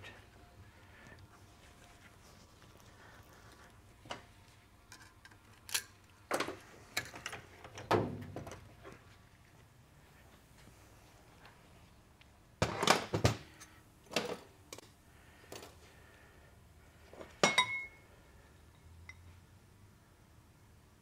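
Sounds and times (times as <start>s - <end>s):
metal clank with ring: 17.4s - 18.0s.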